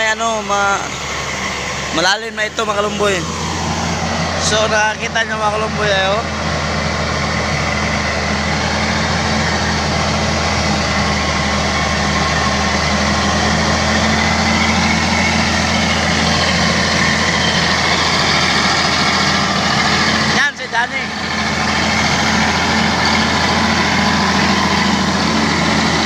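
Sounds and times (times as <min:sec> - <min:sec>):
bulldozer diesel engine under load: 0:00.0 - 0:26.0.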